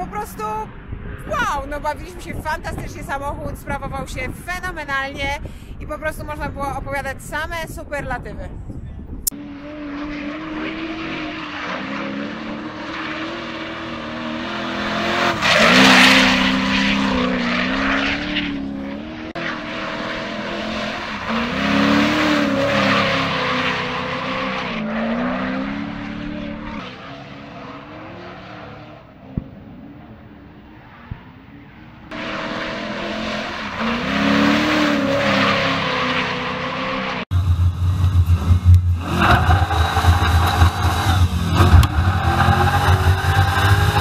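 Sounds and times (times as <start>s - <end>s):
car engine at high revs: 9.3s - 44.0s.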